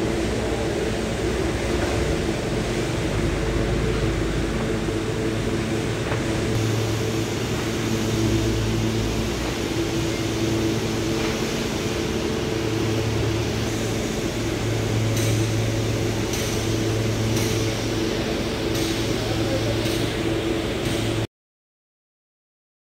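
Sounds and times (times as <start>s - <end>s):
machinery hum: 0.0s - 21.3s.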